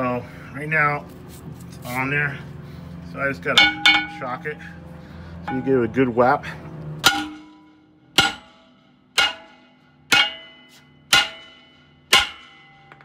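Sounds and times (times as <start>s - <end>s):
hammer striking metal brake drum: 3.5s - 4.7s, 5.5s - 5.9s, 7.0s - 13.0s
short metallic ring: 3.5s - 4.8s, 5.5s - 5.9s, 7.0s - 13.0s.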